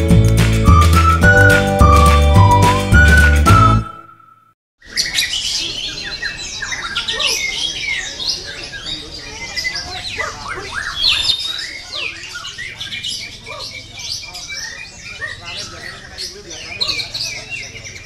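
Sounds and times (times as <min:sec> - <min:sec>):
music: 0:00.0 - 0:04.1
songbird singing: 0:00.8 - 0:18.0.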